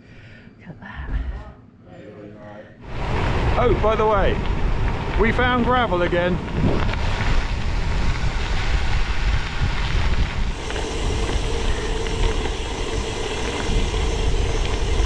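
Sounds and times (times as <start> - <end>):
bike tyres rolling on gravel: 2.8 - 15.0
wind buffeting microphone: 2.8 - 15.0.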